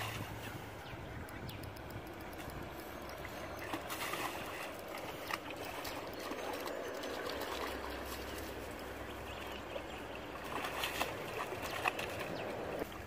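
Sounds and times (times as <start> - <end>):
shallow water splashing: 2.7 - 13.0.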